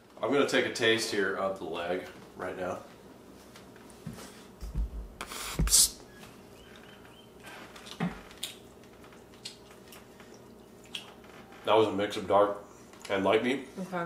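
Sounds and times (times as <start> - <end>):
soft handling thumps: 3.5 - 5.8.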